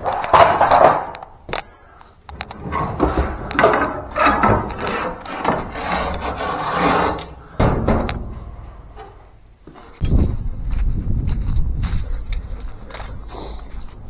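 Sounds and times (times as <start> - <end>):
clicks and scrapes: 2.3 - 7.4
heavy thud: 7.6 - 8.7.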